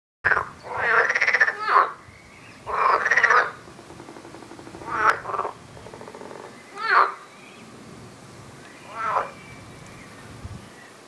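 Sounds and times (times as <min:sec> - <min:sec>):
frog croaking: 0:00.3 - 0:02.0, 0:02.6 - 0:07.3, 0:08.8 - 0:09.4.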